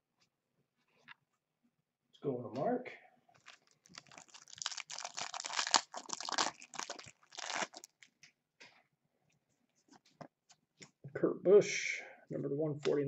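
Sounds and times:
wrapper tearing and crinkling: 3.4s - 8.0s.

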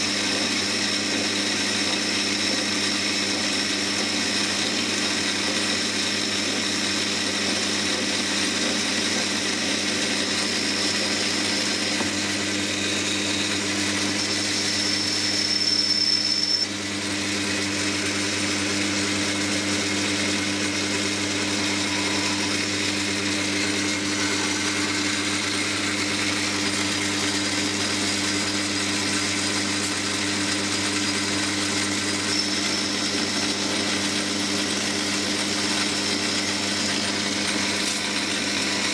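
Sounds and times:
metal lathe humming: 0.0s - 38.9s
high thin whine: 21.2s - 26.4s.

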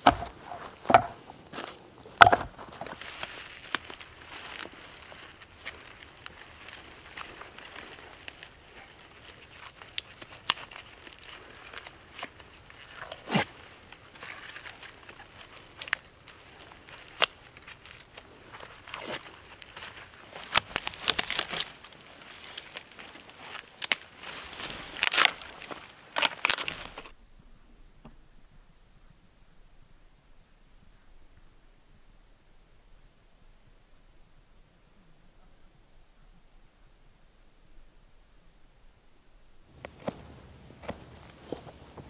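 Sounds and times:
bark cracking and tearing: 0.0s - 27.2s.

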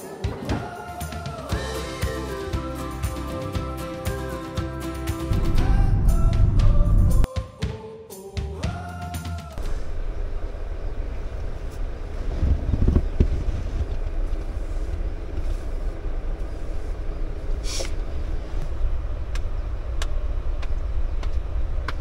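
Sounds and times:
steady low rumble: 5.2s - 7.3s, 9.6s - 22.0s.

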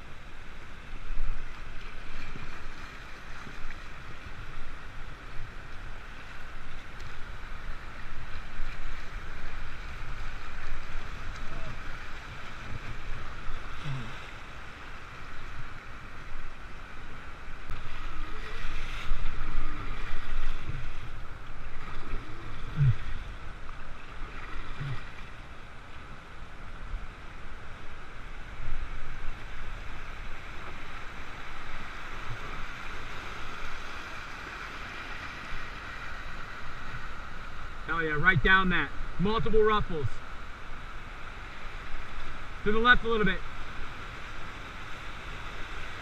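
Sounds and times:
river rapids rushing: 0.0s - 25.8s.

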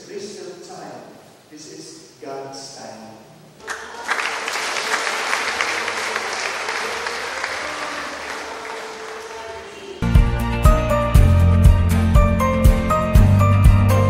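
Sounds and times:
congregation applauding: 3.6s - 10.2s.

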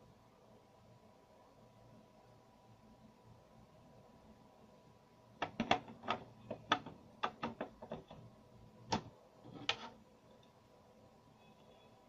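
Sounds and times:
hard plastic clicks and taps: 5.4s - 8.2s
plastic knocks: 5.4s - 8.2s.

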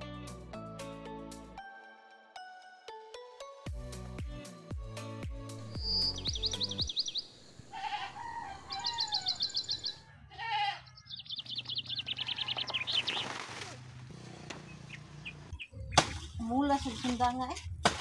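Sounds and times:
bird chirping: 5.6s - 7.9s, 8.6s - 10.1s, 10.8s - 13.3s, 14.6s - 16.1s
goat bleating: 7.7s - 8.2s, 10.3s - 11.0s.

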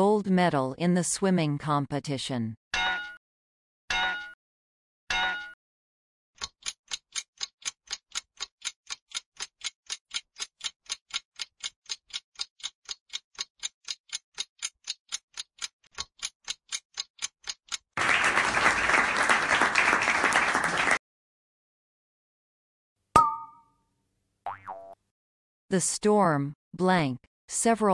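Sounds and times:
clock ticking quickly: 6.4s - 18.0s
applause: 18.0s - 21.0s
short pitched blip: 23.2s - 23.7s.

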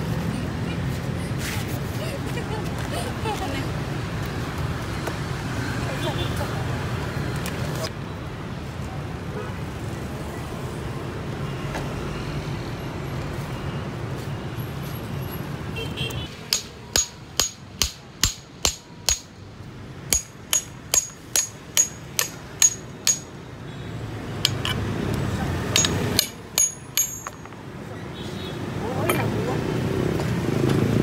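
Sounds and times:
hammer knocking on a cleaver: 16.5s - 19.3s, 20.1s - 23.3s, 25.7s - 27.5s.

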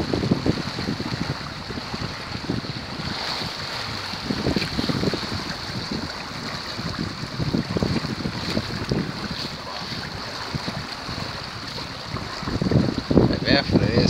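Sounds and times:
water rushing past hull: 0.0s - 14.0s
wind buffeting microphone: 0.0s - 14.0s.

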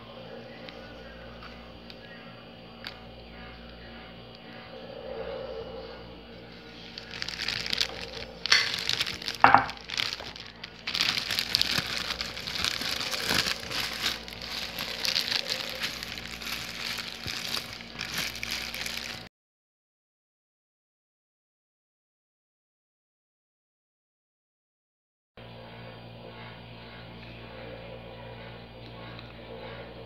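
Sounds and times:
plastic bag crinkling: 6.7s - 19.3s.

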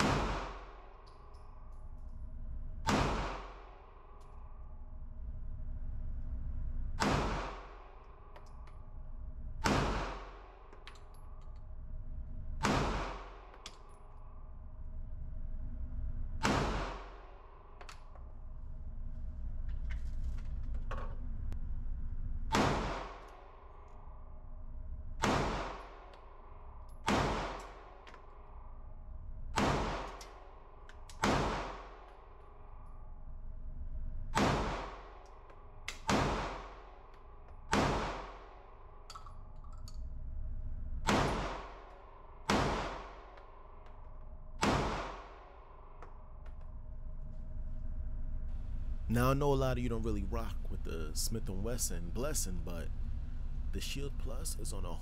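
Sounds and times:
pistol shots with echo: 0.0s - 0.9s, 2.9s - 3.8s, 7.0s - 7.9s, 9.6s - 10.5s, 12.6s - 13.6s, 16.4s - 17.3s, 22.5s - 23.4s, 25.2s - 26.0s, 27.0s - 28.0s, 29.6s - 30.2s, 31.1s - 32.1s, 34.4s - 35.2s, 36.0s - 37.0s, 37.7s - 38.6s, 41.1s - 41.9s, 42.5s - 43.3s, 44.6s - 46.0s.

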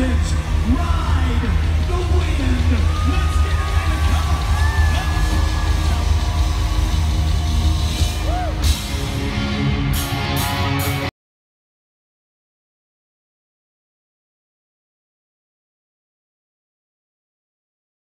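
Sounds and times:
crowd cheering: 0.0s - 11.1s
live rock band: 0.0s - 11.1s
singer yelling: 2.6s - 6.6s.

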